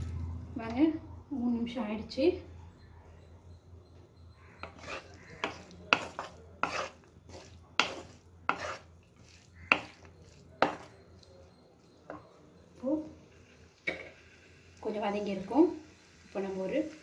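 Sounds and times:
spatula scraping frying cabbage: 0:04.4 - 0:12.3.

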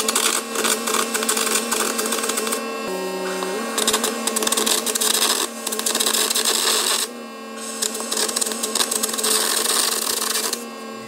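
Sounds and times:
arc crackling: 0:03.2 - 0:10.6
compressed air hissing: 0:03.2 - 0:10.6.

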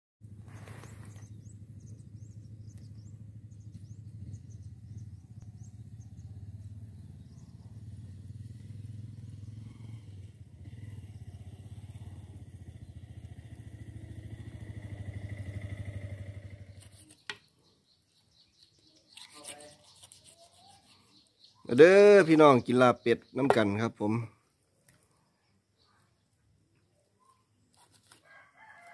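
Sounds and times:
small engine running: 0:00.3 - 0:17.2
faint bird chirps: 0:00.4 - 0:28.9.

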